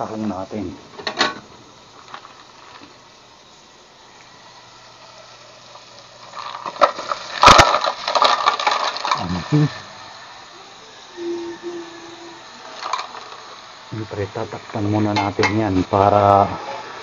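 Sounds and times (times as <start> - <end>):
mussel shells clattering in pot: 6.1 - 9.5, 12.6 - 13.7.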